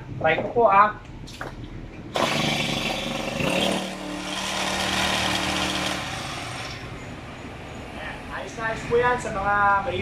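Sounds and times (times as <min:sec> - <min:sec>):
brushcutter engine revving: 0:02.2 - 0:05.8.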